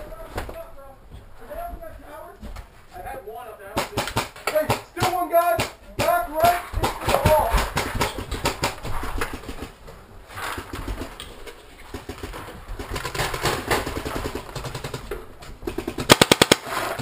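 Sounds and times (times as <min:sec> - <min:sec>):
paintball marker rapid shots: 0:03.8 - 0:09.8, 0:11.9 - 0:17.0.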